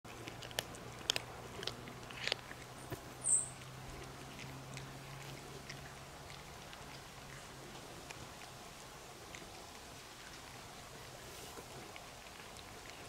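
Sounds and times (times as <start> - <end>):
cats crunching dry kibble: 0.1 - 13.0.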